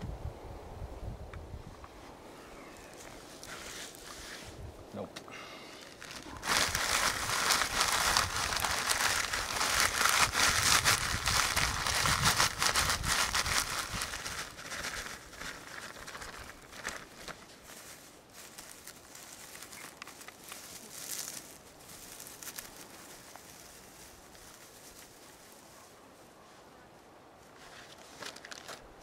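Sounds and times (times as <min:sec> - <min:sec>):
plastic bag crinkling: 0:05.8 - 0:25.4.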